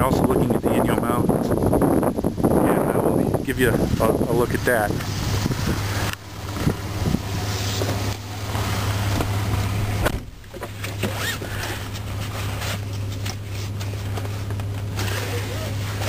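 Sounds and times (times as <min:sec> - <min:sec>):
idling engine hum: 0:00.0 - 0:16.0
car door shutting: 0:06.0 - 0:16.0
rustling and handling noises: 0:10.4 - 0:16.0.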